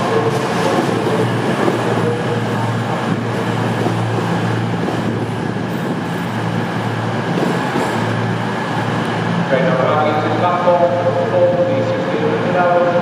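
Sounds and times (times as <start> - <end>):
diesel train engine drone: 0.0 - 13.0
train wheels rumbling on rails: 0.0 - 13.0.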